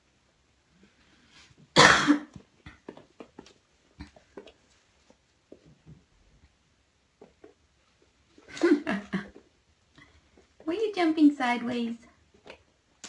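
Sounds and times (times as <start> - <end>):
person coughing: 1.8 - 2.4.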